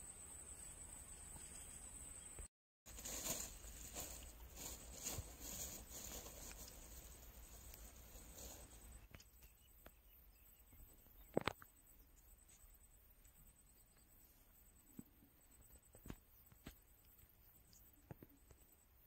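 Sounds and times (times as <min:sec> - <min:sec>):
faint rustling: 0:02.9 - 0:09.1.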